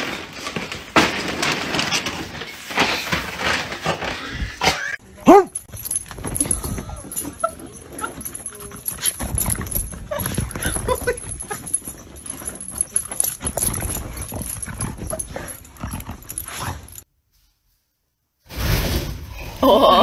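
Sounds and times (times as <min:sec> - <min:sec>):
dog scuffling and pawing: 0:05.6 - 0:17.0.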